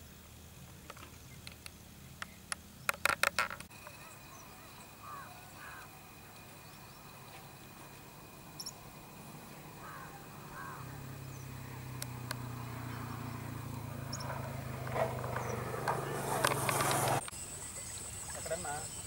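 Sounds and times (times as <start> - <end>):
faint bird chirps: 3.7 - 14.4
steady low hum: 3.7 - 17.7
small clicks: 12.0 - 12.4.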